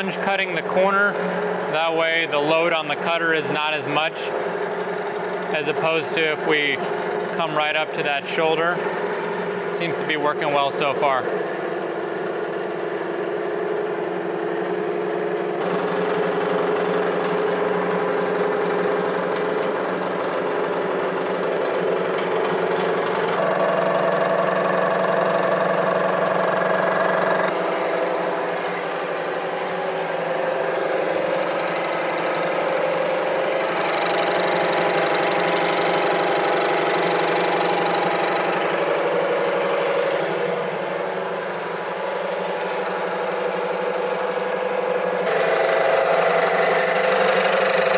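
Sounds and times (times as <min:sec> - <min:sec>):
milling machine cutting metal: 0:00.0 - 0:47.9.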